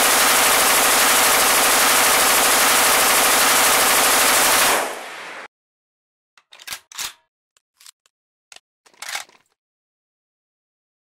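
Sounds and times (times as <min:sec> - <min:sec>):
machine gun burst: 0:00.0 - 0:05.2
metallic clicks of gun reloading: 0:06.4 - 0:09.6.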